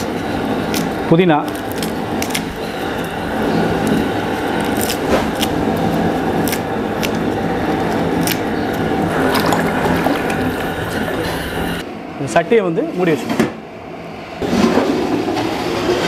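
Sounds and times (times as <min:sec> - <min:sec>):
water boiling hard in a pot: 0:00.0 - 0:11.8
hand splashing in water: 0:09.1 - 0:11.2.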